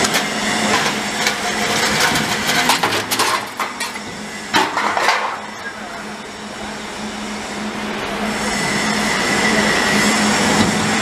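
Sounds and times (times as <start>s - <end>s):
roll forming machine running: 0.0s - 11.0s
high whine: 3.6s - 11.0s.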